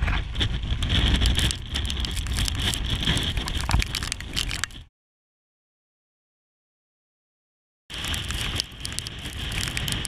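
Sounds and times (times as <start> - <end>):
storm wind buffeting microphone: 0.0 - 4.9, 7.9 - 10.0
rain ticking on microphone: 0.5 - 4.8, 7.9 - 10.0.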